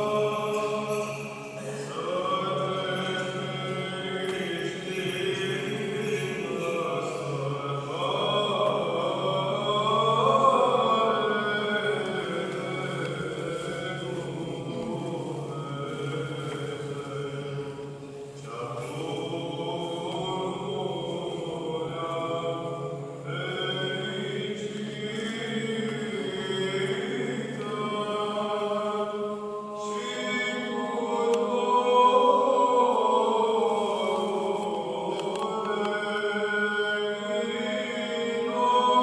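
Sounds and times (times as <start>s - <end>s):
liturgical chant: 0.0s - 39.0s.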